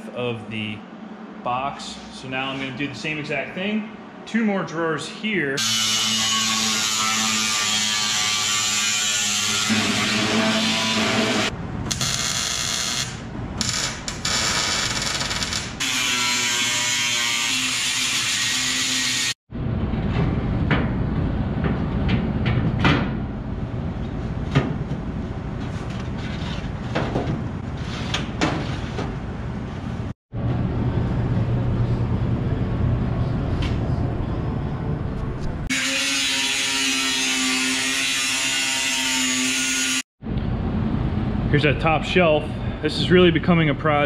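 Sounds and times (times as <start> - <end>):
angle grinder cutting metal: 5.6 - 11.5, 15.8 - 19.4, 35.7 - 40.0.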